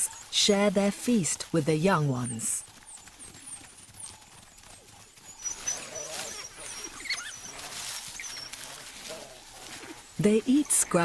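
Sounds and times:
wild dogs squeaking and twittering: 0:00.0 - 0:11.0
faint rustling: 0:02.6 - 0:10.7.

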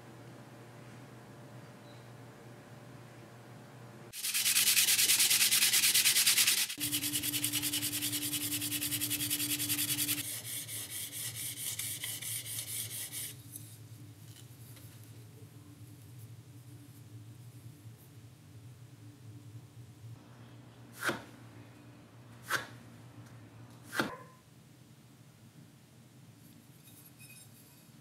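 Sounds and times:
hand sanding with abrasive paper: 0:04.2 - 0:13.4.

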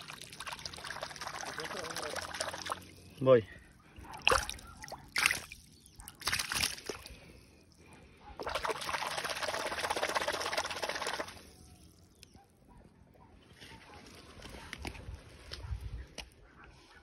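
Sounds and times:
pond water splashing: 0:00.0 - 0:03.2, 0:03.8 - 0:07.4, 0:08.4 - 0:11.6.

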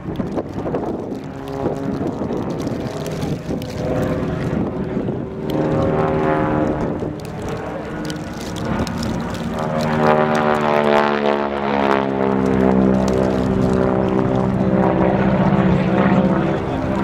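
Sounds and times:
propeller plane engine: 0:00.0 - 0:17.0.

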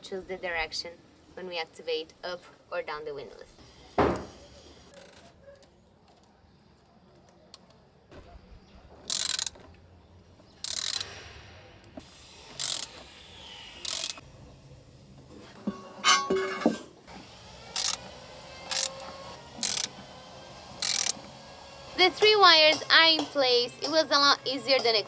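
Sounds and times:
ratcheting bursts: 0:09.1 - 0:09.6, 0:10.6 - 0:11.2, 0:12.5 - 0:13.0, 0:13.8 - 0:14.2, 0:17.6 - 0:25.0.

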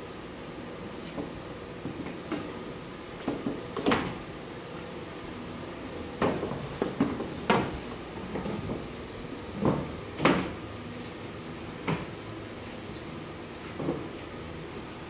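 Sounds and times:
faint steady hum: 0:00.0 - 0:15.0
wooden panels knocking on workbench: 0:06.2 - 0:08.8.

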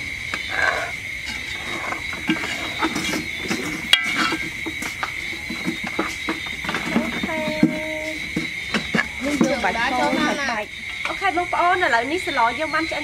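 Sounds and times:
metal ladle scraping a pot: 0:01.2 - 0:10.5.

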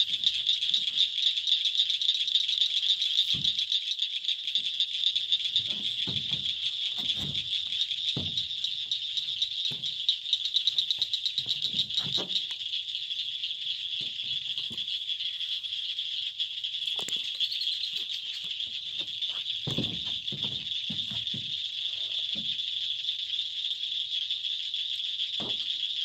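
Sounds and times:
insects trilling: 0:00.0 - 0:26.0
boots stepping on wooden boards: 0:05.6 - 0:10.0, 0:18.6 - 0:21.6.

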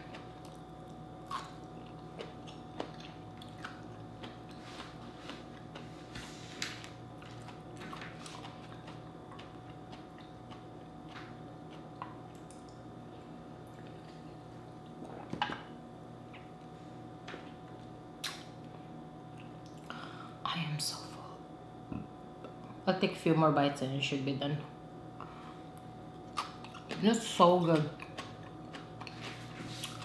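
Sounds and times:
person chewing food: 0:00.0 - 0:15.3, 0:25.2 - 0:27.1, 0:27.7 - 0:30.0
faint hum: 0:00.0 - 0:30.0.

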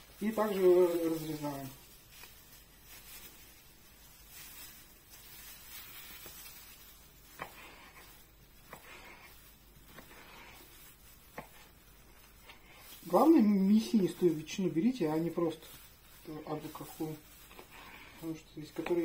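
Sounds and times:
knife slicing ham: 0:07.3 - 0:11.8.

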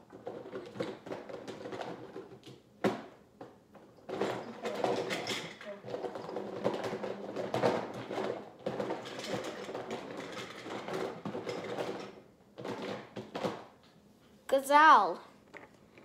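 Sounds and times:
plastic toys clicking and rattling: 0:00.0 - 0:02.6, 0:03.8 - 0:13.7.

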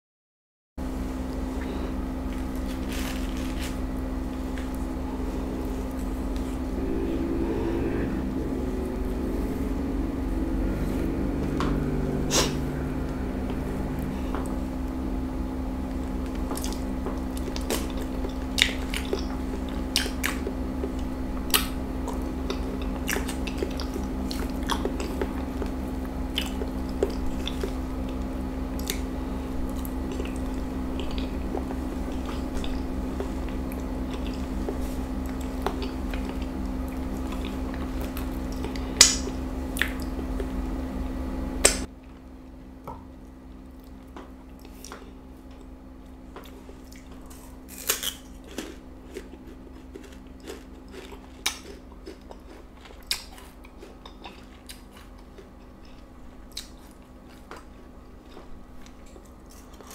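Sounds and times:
air conditioner hum: 0:00.8 - 0:59.9
banana being peeled: 0:01.6 - 0:07.5, 0:47.0 - 0:51.7
chewing with wet mouth clicks: 0:16.3 - 0:29.1, 0:29.7 - 0:40.5, 0:47.8 - 0:59.9.

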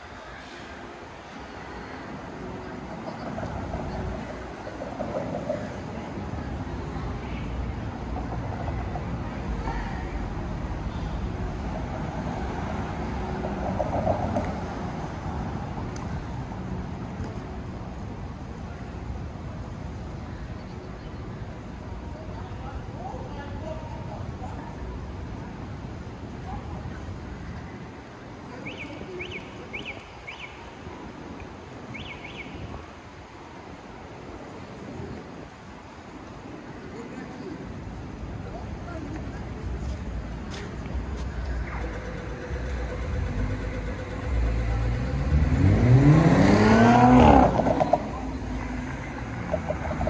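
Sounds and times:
low rumble of traffic: 0:00.0 - 0:50.0
bird chirping: 0:31.9 - 0:32.6
vehicle passing: 0:40.4 - 0:50.0.

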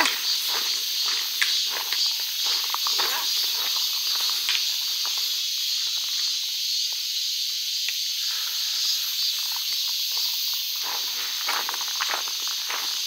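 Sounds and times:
footsteps on gravel: 0:00.0 - 0:06.1, 0:09.4 - 0:13.0
insect chorus drone: 0:00.0 - 0:13.0.

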